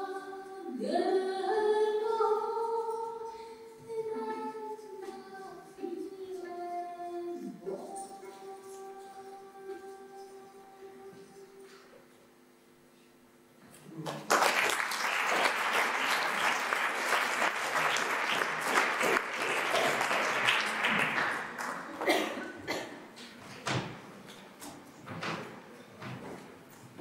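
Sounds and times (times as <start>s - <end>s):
audience applause: 14.0s - 22.3s.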